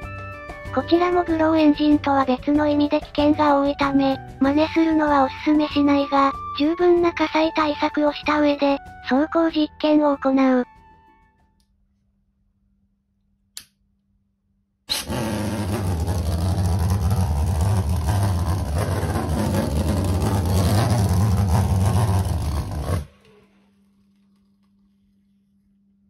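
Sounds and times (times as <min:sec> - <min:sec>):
pulse jet engine drone: 0:14.9 - 0:23.1.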